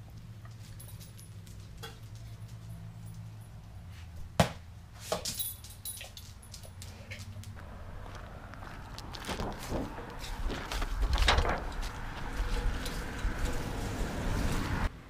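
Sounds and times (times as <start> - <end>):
dog collar tags jingling: 0.4 - 3.8, 5.2 - 7.3.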